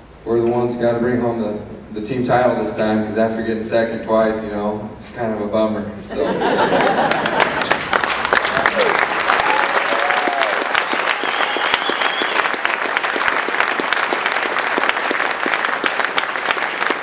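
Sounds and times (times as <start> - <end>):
audience applauding: 6.7 - 17.0.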